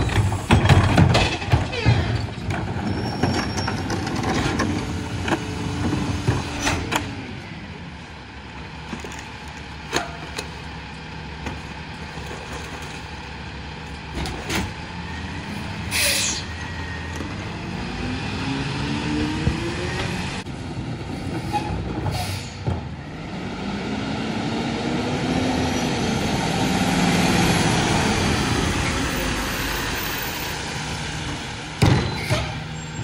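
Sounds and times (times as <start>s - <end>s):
trash clanks and knocks: 0.0s - 7.2s, 8.8s - 14.8s, 31.3s - 32.7s
air brakes hiss: 15.9s - 16.5s, 21.5s - 22.6s.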